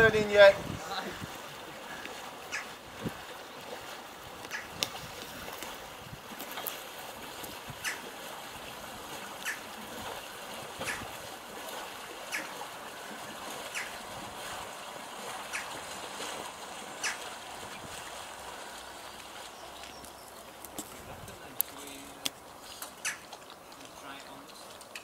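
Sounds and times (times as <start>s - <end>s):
paddle churning water: 0.0s - 25.0s
sharp water slap: 4.4s - 5.8s, 7.4s - 8.2s, 9.2s - 12.7s, 13.4s - 18.2s.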